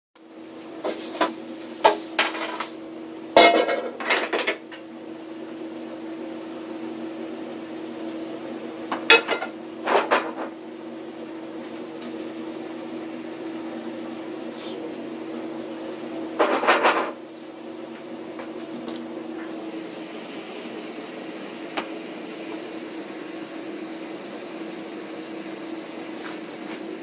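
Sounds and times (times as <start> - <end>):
steady kitchen hum: 0.2 - 27.0
pans and plates clattering: 3.4 - 4.6.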